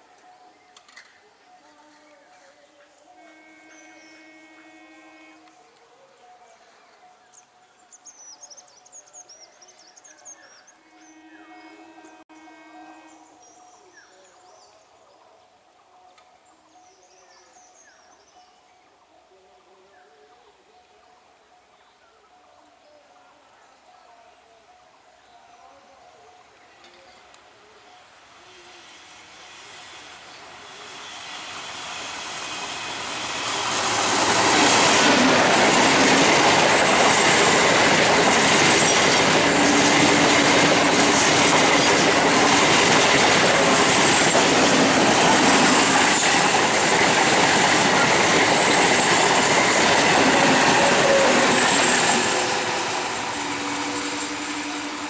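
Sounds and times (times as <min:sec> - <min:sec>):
train wheels rushing over rails: 0:28.8 - 0:55.0.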